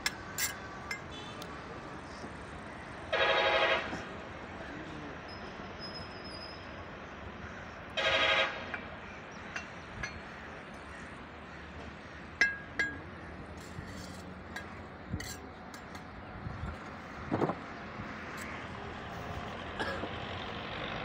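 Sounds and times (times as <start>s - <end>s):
trowel clinking against bricks: 0.0s - 1.1s, 12.4s - 16.1s.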